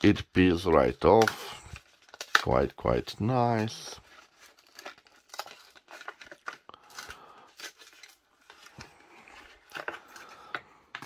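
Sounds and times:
plastic blister pack crinkling: 0.6s - 11.0s.

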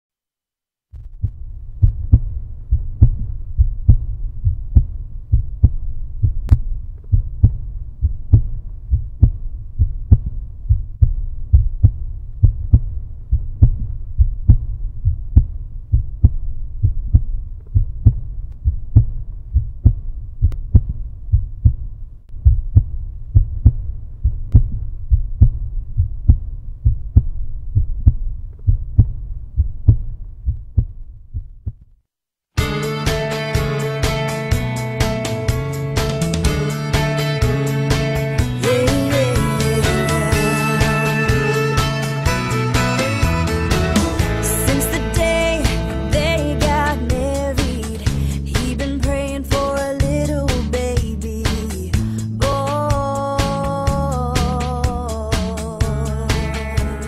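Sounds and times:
heartbeat thumps: 1.0s - 31.9s, 40.3s - 54.0s.

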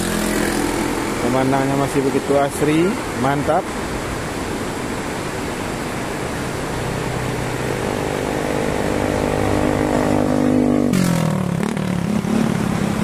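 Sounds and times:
vehicle engine passing by: 0.0s - 1.7s, 6.5s - 13.0s
river rushing over rocks: 0.0s - 13.0s.

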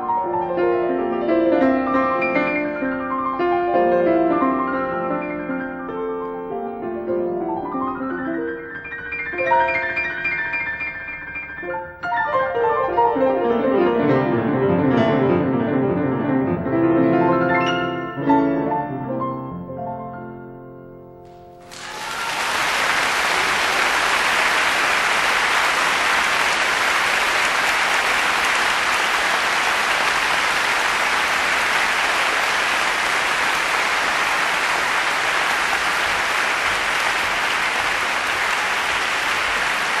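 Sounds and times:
piano notes: 0.0s - 21.8s
audience applauding: 21.6s - 40.0s.

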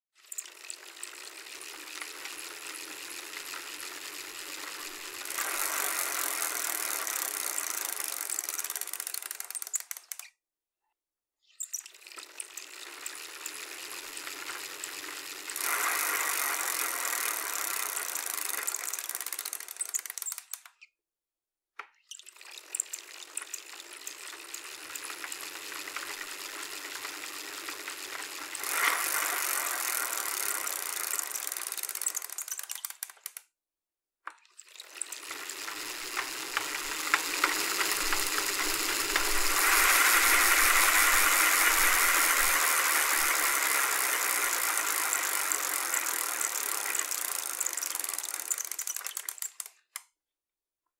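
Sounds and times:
bicycle freewheel clicking: 0.2s - 10.3s, 11.6s - 20.9s, 22.1s - 33.5s, 34.6s - 50.0s
bicycle whir: 0.2s - 10.3s, 11.6s - 20.7s, 22.2s - 33.4s, 34.6s - 49.7s.

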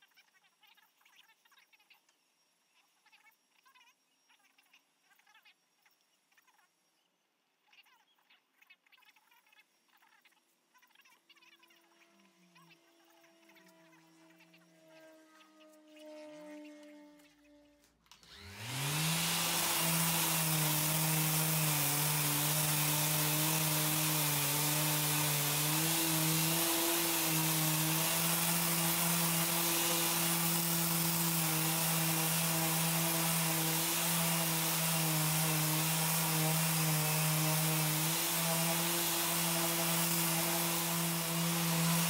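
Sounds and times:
orbital sander running: 12.0s - 17.5s, 18.1s - 42.0s.

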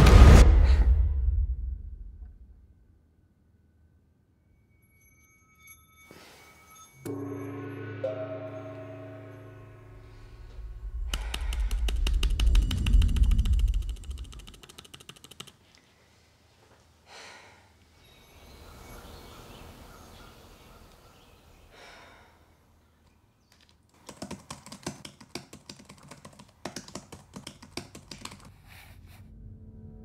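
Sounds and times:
typing on computer keyboard: 11.1s - 15.6s, 23.9s - 28.5s.

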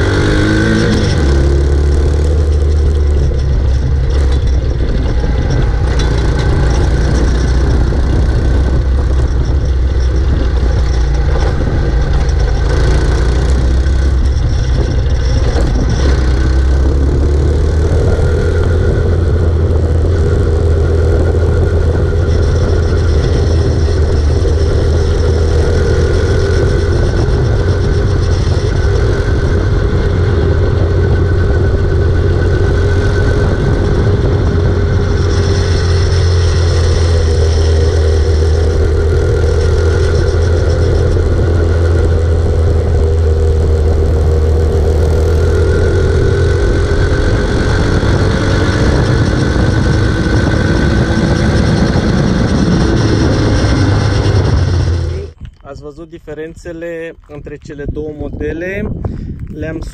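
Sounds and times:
quad bike engine drone: 0.0s - 59.9s.

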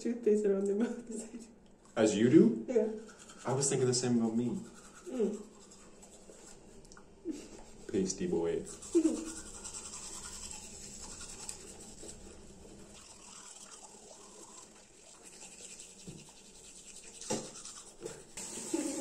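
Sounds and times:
toothbrushes scrubbing teeth: 2.8s - 19.0s.

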